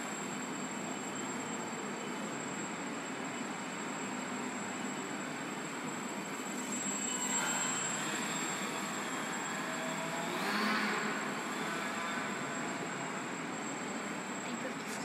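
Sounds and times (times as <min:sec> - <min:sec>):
model airplane motor buzzing: 0:06.5 - 0:13.9.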